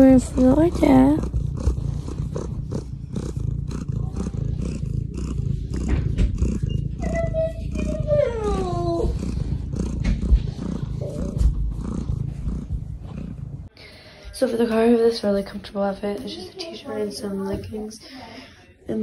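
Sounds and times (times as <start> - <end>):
cat purring: 0.0 - 14.3
cat calling: 5.4 - 11.5.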